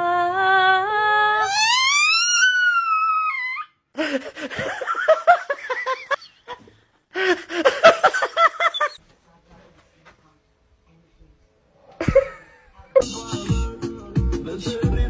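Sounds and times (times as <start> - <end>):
dog whining yelps: 1.4 - 3.8, 8.6 - 9.0.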